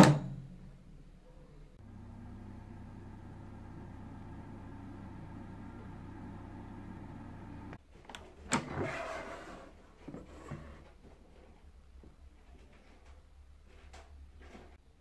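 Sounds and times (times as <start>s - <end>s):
air fryer fan humming: 1.8s - 7.8s
basket sliding scrape: 8.6s - 10.9s.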